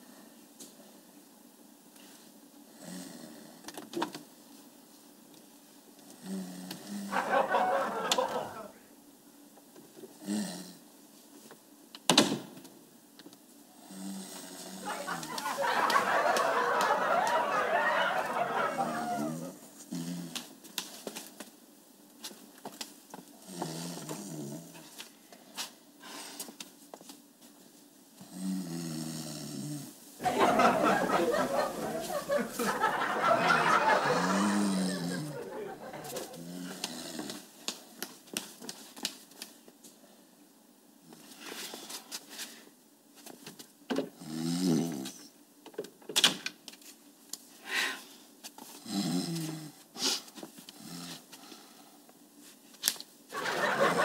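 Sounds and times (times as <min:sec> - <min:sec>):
person snoring: 0:06.2 - 0:07.1, 0:28.3 - 0:29.8, 0:34.2 - 0:35.4, 0:44.2 - 0:45.0, 0:48.8 - 0:49.7.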